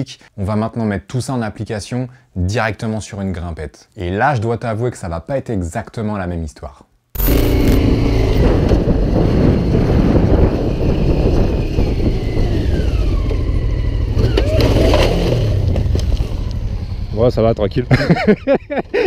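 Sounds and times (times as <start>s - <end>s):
motorcycle engine pulling uphill: 7.2s - 19.0s.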